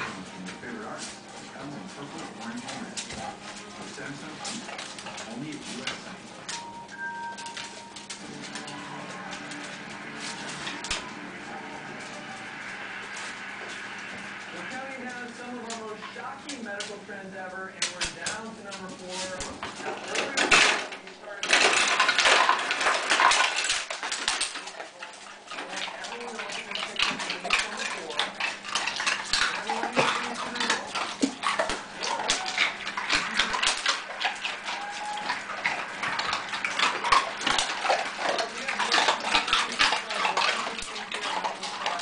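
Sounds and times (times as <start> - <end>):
dogs crunching ice: 0.0 - 6.7, 17.8 - 42.0
ice cubes rattling from dispenser: 19.8 - 24.9.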